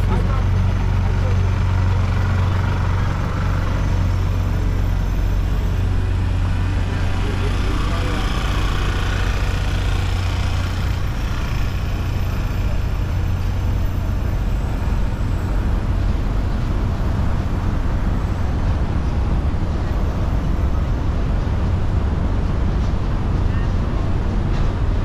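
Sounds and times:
traffic rumble: 0:00.0 - 0:25.0
faint voices: 0:05.6 - 0:09.8.

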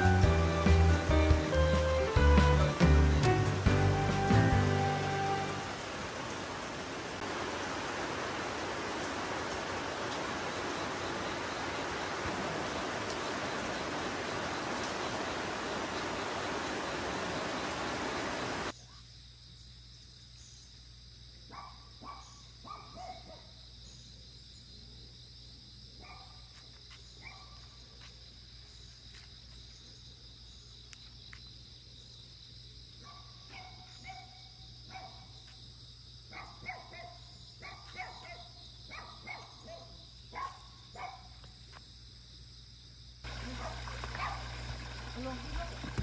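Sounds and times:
dogs barking: 0:21.5 - 0:23.6, 0:26.0 - 0:26.5, 0:27.2 - 0:27.7, 0:33.0 - 0:35.4, 0:36.3 - 0:41.4, 0:43.3 - 0:46.0
high insect drone: 0:40.0 - 0:46.0.

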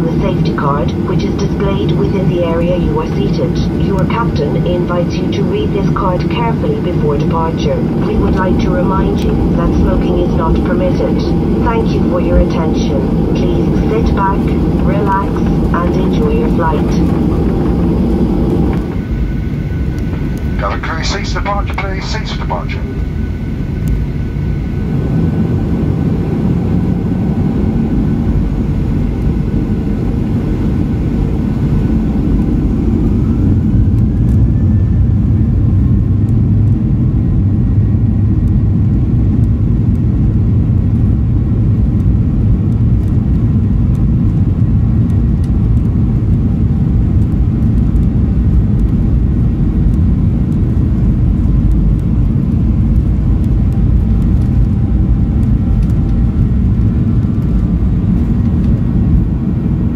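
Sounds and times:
jet engines spooling up: 0:00.0 - 0:35.9.

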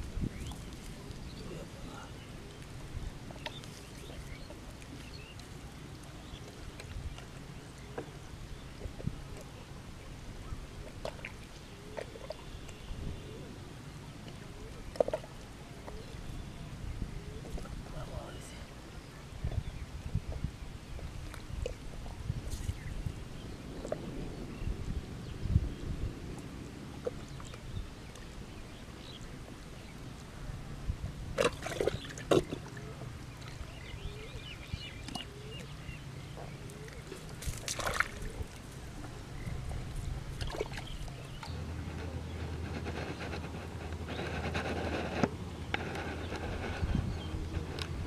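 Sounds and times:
mud squelching: 0:31.4 - 0:48.0
hands squelching through wet mud: 0:36.4 - 0:41.4.

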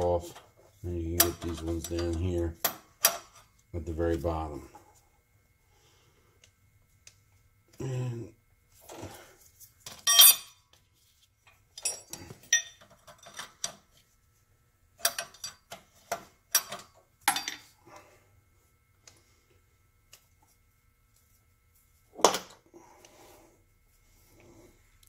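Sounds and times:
wrench clinking on metal fittings: 0:09.9 - 0:10.6, 0:11.8 - 0:13.8.

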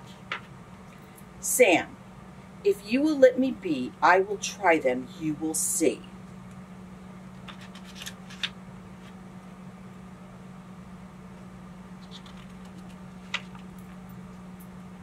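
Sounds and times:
low room tone hum: 0:00.0 - 0:15.0
book pages turning: 0:00.1 - 0:00.5, 0:07.4 - 0:09.2, 0:12.0 - 0:13.8.

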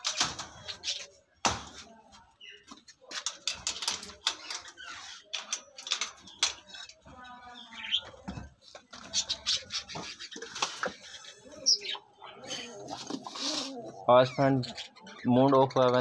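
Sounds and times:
hands rattling wire mesh: 0:00.0 - 0:01.8, 0:02.8 - 0:07.2.

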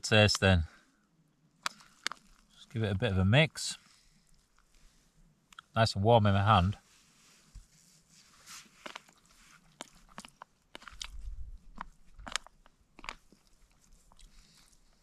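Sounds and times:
person chewing: 0:01.6 - 0:02.5, 0:08.7 - 0:15.0.

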